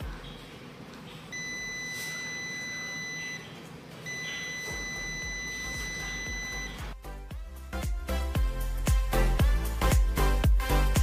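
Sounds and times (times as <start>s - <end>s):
multimeter continuity beep: 1.3s - 7.0s.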